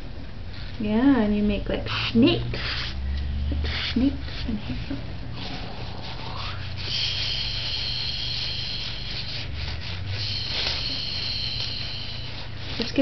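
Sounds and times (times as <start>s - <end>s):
low hum: 2.4s - 12.9s
fingers rubbing paint on paper: 3.6s - 13.0s.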